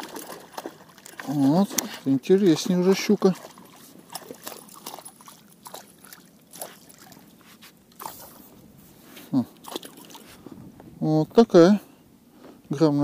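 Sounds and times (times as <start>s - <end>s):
fish splashing in water: 0.0s - 8.5s, 9.6s - 10.4s.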